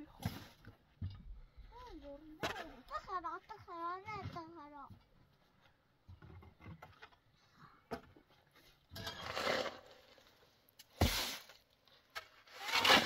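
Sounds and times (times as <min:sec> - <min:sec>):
tool scraping through sand: 0:09.0 - 0:11.6, 0:12.2 - 0:13.0.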